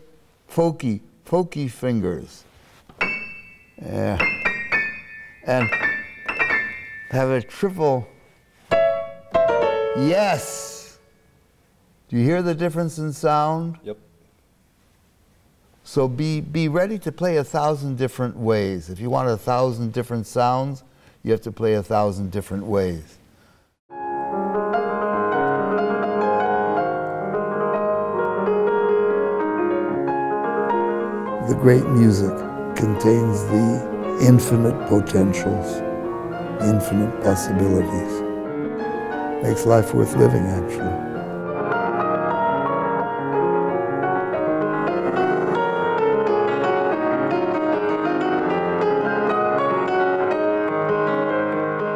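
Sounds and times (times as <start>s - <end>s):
grand piano playing: 2.9s - 11.1s, 23.9s - 51.9s.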